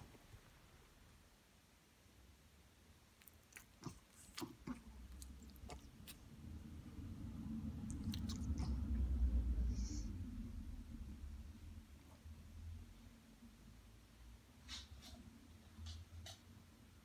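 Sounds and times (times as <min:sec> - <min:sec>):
low rumble: 0:05.1 - 0:13.9.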